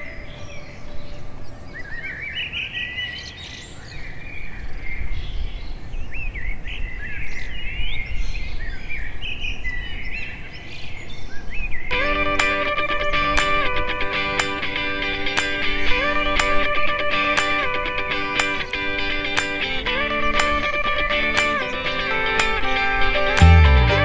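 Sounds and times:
songbirds chirping and singing: 0:00.0 - 0:23.4
guitar music: 0:11.9 - 0:24.0.

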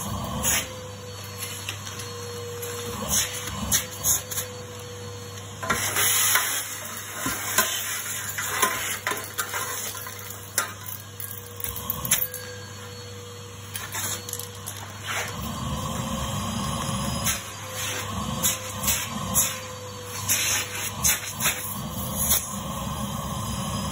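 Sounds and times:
vacuum cleaner humming: 0:00.0 - 0:23.9.

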